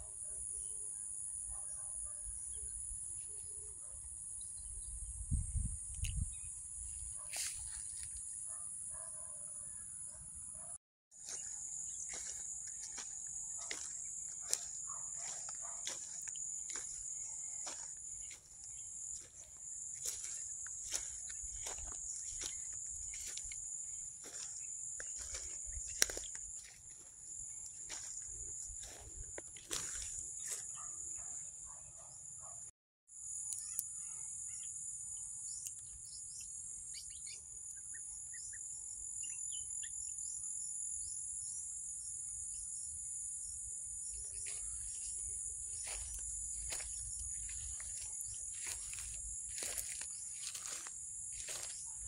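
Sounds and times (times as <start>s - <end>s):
high-pitched insect chorus: 0.0s - 9.1s, 11.2s - 32.5s, 33.2s - 52.0s
footsteps through dry grass: 7.0s - 8.3s, 11.2s - 30.8s, 44.2s - 52.0s.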